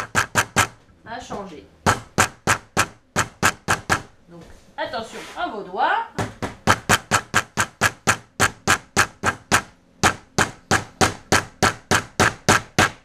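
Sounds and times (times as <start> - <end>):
hammer driving nails into wood: 0.0 - 0.8, 1.9 - 4.1, 6.2 - 13.0.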